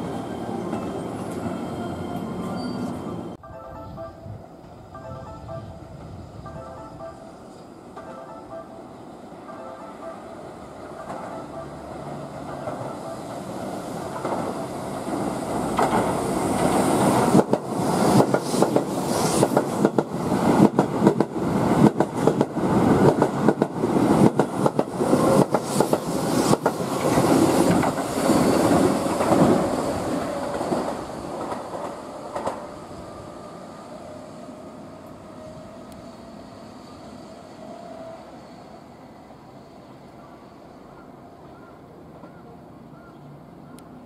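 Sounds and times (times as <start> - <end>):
electric train passing at speed: 0.0 - 44.0.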